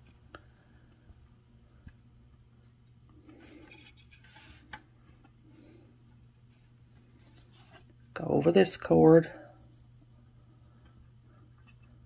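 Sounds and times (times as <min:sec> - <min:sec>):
fingers rustling cord: 0:01.6 - 0:08.0.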